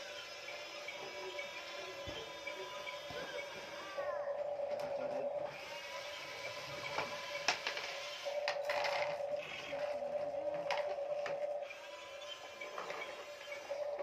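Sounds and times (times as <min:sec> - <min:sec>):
small electric motor whining: 0:00.0 - 0:14.0
plastic toys knocking on wood: 0:07.0 - 0:09.2.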